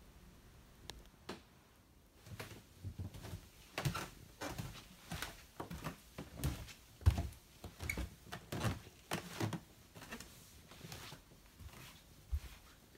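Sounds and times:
footsteps on wooden stairs: 0:02.3 - 0:10.2.

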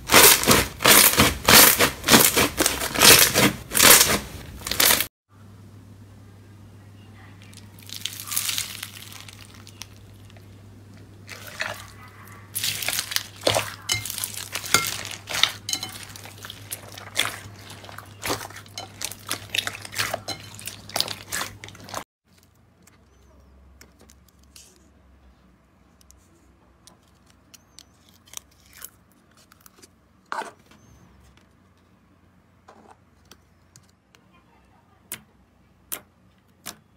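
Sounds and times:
slime crackling and popping: 0:00.0 - 0:05.1, 0:07.5 - 0:10.5, 0:12.6 - 0:22.0
low steady hum: 0:04.6 - 0:30.2.

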